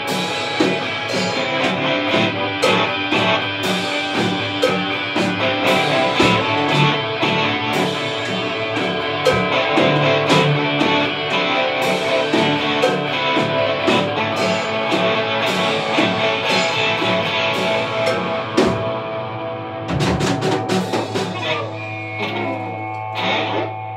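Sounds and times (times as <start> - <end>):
drum kit: 0.0 - 23.9
electric guitars: 0.0 - 23.9.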